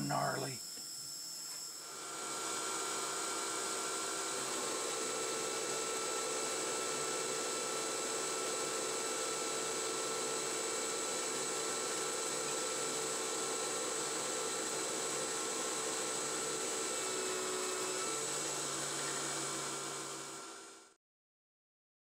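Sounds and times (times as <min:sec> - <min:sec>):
drive whine: 0:00.0 - 0:02.0
lathe machining noise: 0:00.0 - 0:20.9.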